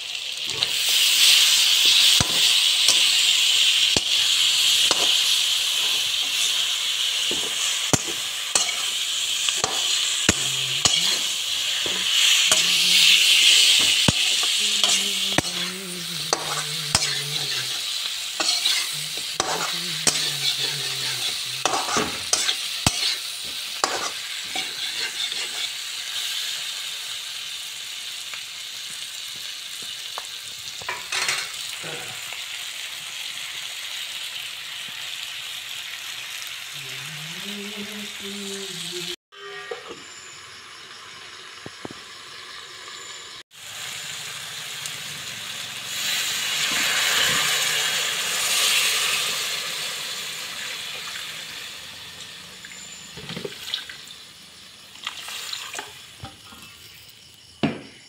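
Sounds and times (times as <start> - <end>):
food sizzling in hot oil: 0.0 - 57.7
metal spatula scraping pan: 0.5 - 25.8.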